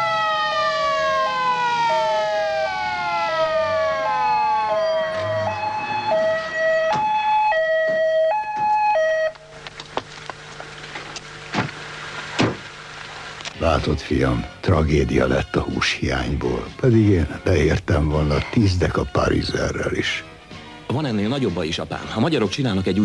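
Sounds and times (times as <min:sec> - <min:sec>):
two-tone ambulance siren: 0:00.0 - 0:09.6.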